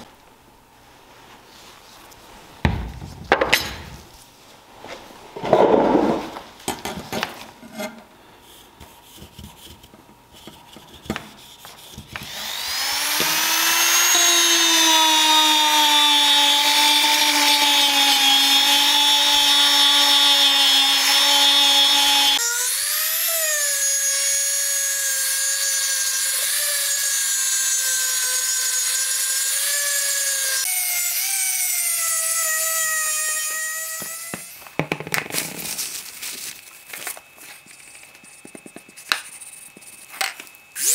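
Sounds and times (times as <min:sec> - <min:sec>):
rotary tool whining: 0:11.9 - 0:34.6, 0:36.6 - 0:40.9.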